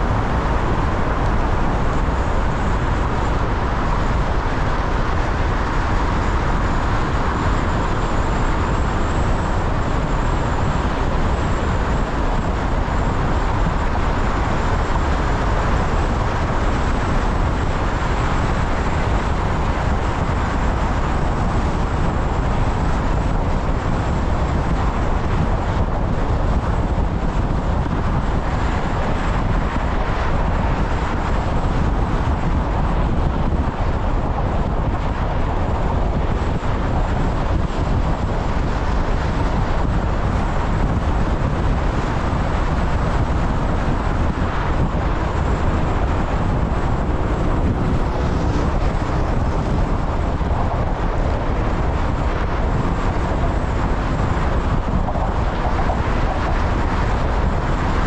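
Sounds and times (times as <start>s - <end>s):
road and tyre noise: 0.0s - 58.0s.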